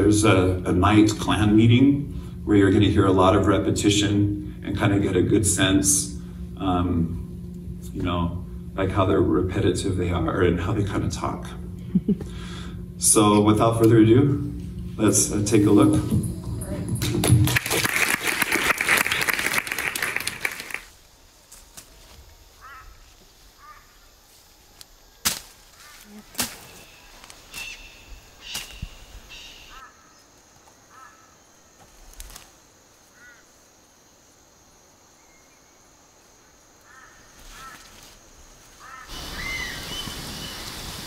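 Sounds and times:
tropical forest ambience with birds: 0:17.9 - 0:41.0
bird chirps: 0:26.6 - 0:29.9, 0:39.1 - 0:40.8.

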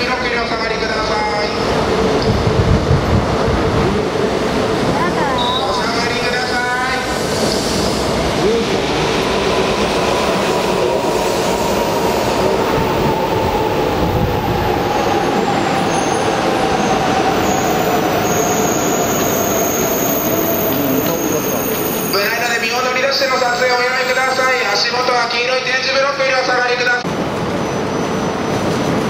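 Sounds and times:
train cars rumbling past: 0:00.0 - 0:26.0.

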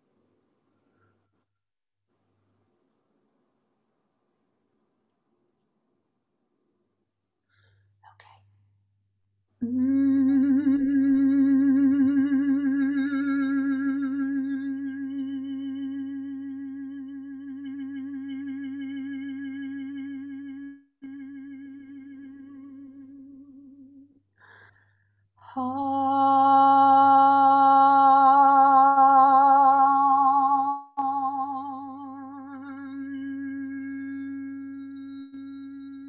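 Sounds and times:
woman toning a sustained note: 0:25.6 - 0:36.0.

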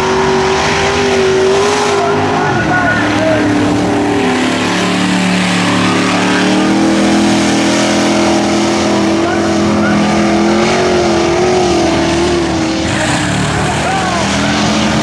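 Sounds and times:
pickup engine revving high: 0:00.0 - 0:15.0.

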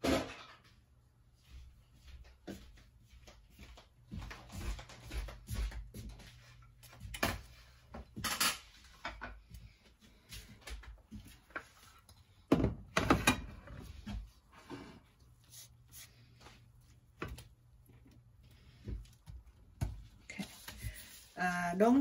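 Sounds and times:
cookware clacking and scraping: 0:13.0 - 0:14.0.

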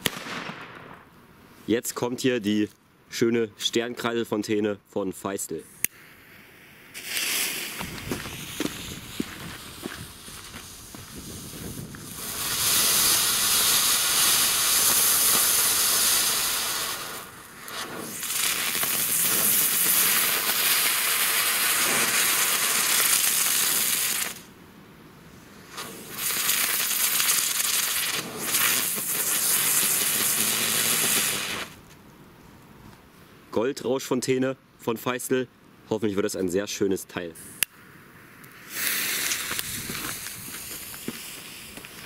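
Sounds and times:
firework fountain hissing: 0:06.2 - 0:24.5, 0:25.6 - 0:31.8, 0:38.6 - 0:42.0.

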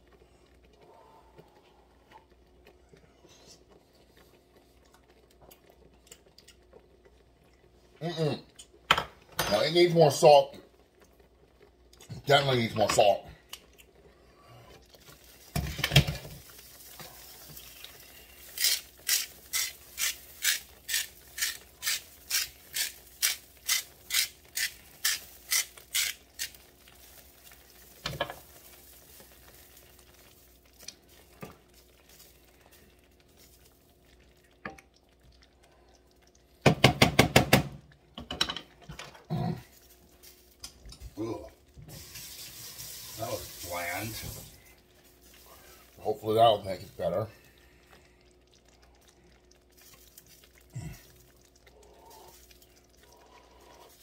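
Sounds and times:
salt mill grinding: 0:18.5 - 0:26.6.

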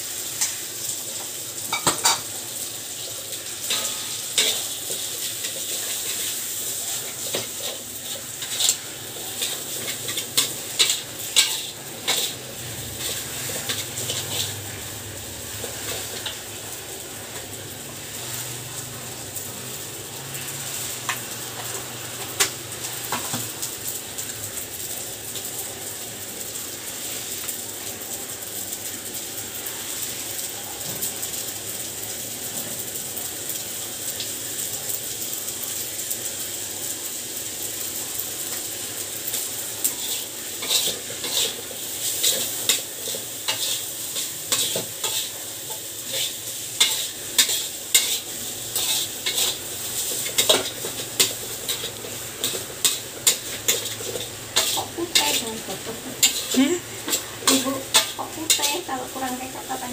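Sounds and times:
rice sizzling in a wok: 0:00.0 - 0:59.9
metal spatula scraping wok: 0:03.6 - 0:16.5, 0:39.3 - 0:59.9.

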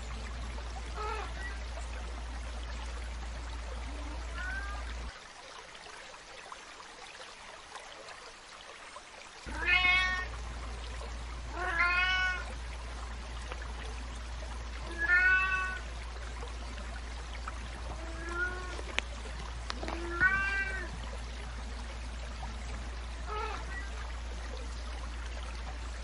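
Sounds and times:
cat meowing: 0:09.5 - 0:10.3, 0:11.6 - 0:12.4, 0:14.9 - 0:15.8, 0:18.0 - 0:18.8, 0:19.8 - 0:20.9, 0:23.3 - 0:23.9.

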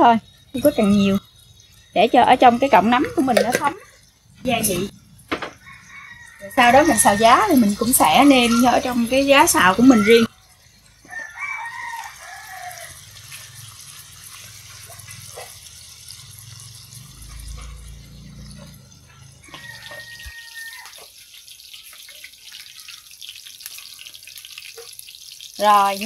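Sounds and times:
mushrooms sizzling in a pan: 0:00.0 - 0:26.0
chicken calling: 0:05.5 - 0:10.3.

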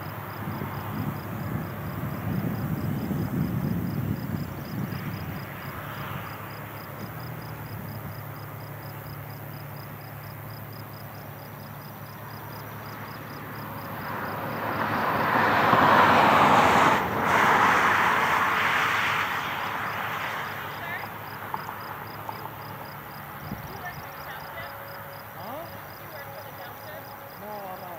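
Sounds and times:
vehicle passing by: 0:00.0 - 0:27.9.

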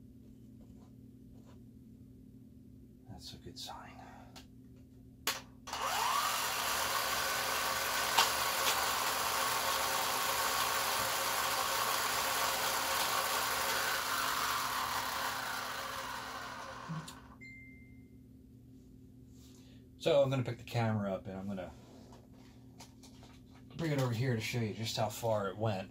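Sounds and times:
toy motor whining: 0:05.7 - 0:17.4.

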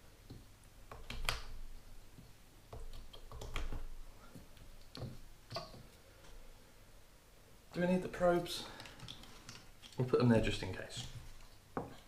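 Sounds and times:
cables rustling: 0:08.2 - 0:12.0.

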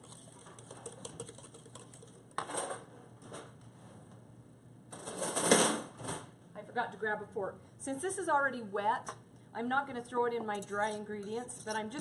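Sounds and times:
whisk clicking in bowl: 0:00.0 - 0:02.2.

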